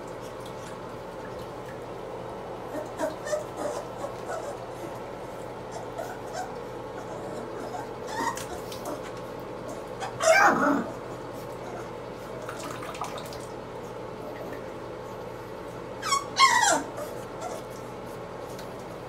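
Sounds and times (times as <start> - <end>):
puppy crying: 2.7 - 5.0, 5.6 - 12.0, 16.0 - 17.8.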